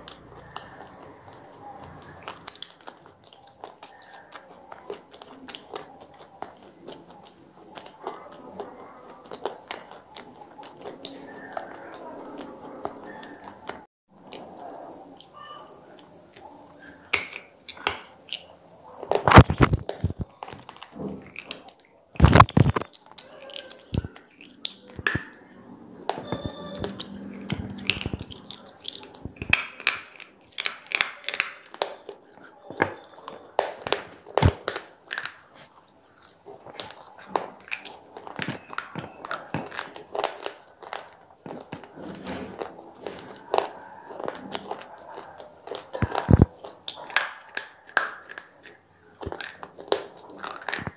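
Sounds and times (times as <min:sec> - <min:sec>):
gritty chewing: 0:00.0 - 0:50.9
slate crunching between teeth: 0:00.0 - 0:50.9.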